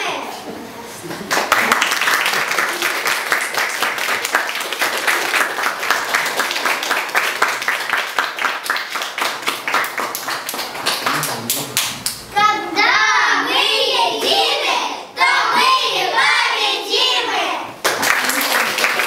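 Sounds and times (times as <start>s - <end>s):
hands clapping in rhythm: 1.1s - 12.3s, 17.8s - 19.0s
children singing together: 12.7s - 17.7s.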